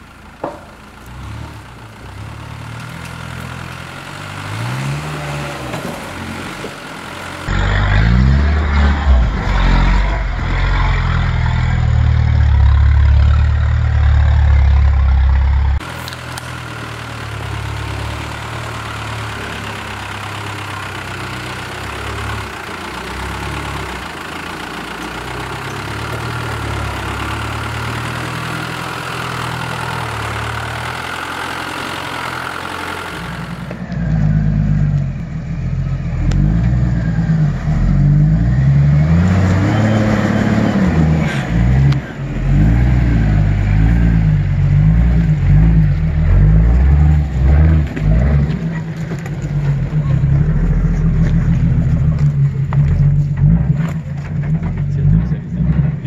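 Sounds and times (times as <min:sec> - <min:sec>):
engine revving under load: 0:01.0 - 0:56.0.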